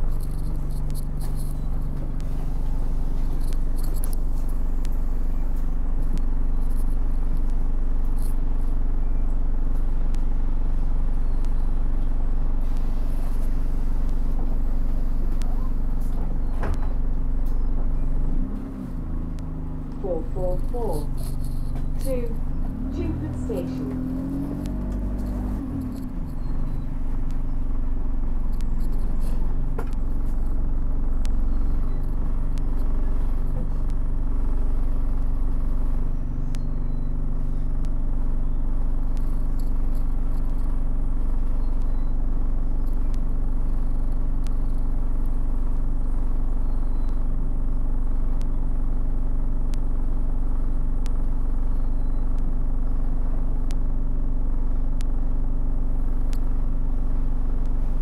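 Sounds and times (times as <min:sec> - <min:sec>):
faint ticks and rattles: 0:00.0 - 0:08.7, 0:19.3 - 0:27.8
bus engine humming: 0:00.0 - 0:47.0.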